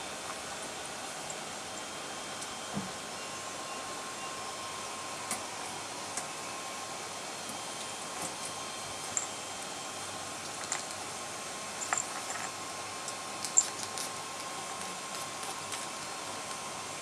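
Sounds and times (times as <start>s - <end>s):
ferrets scratching and clicking: 10.4s - 11.1s, 11.8s - 16.6s.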